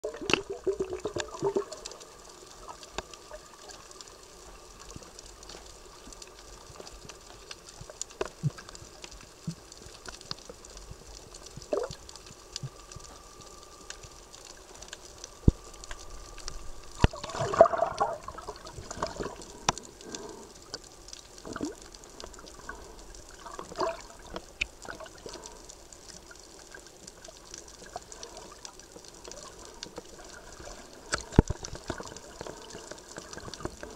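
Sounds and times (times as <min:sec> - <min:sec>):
underwater water noise: 0:00.0 - 0:33.9
rush of water: 0:15.4 - 0:20.5.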